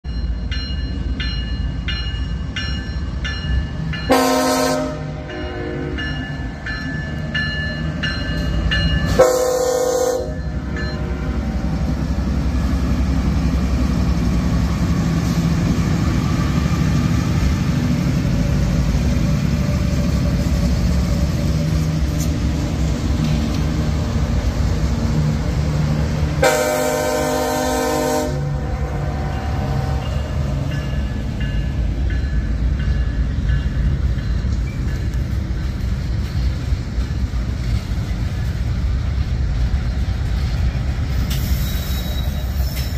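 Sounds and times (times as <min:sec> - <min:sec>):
crossing bell dinging: 0:00.0 - 0:12.0, 0:26.4 - 0:38.6
diesel locomotive rumble: 0:00.0 - 0:42.9
locomotive air horn blasts: 0:04.1 - 0:06.0, 0:09.1 - 0:11.4, 0:26.4 - 0:30.0.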